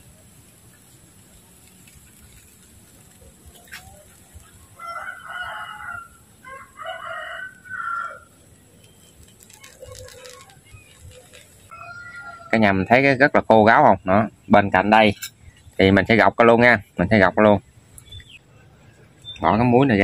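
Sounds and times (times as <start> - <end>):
rooster crowing: 4.6 - 8.4, 11.7 - 12.8.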